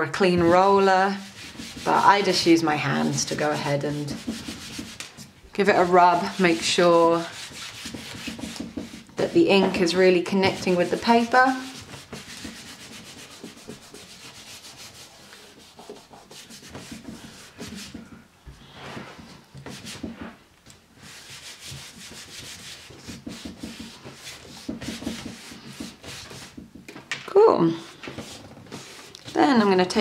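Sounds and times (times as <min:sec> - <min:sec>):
hands rubbing paper: 0:00.3 - 0:20.4, 0:21.0 - 0:26.8, 0:27.9 - 0:30.0.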